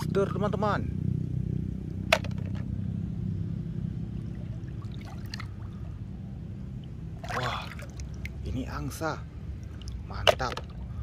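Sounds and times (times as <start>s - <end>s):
steady low hum: 0.0s - 11.0s
shallow water trickling and lapping: 4.0s - 11.0s.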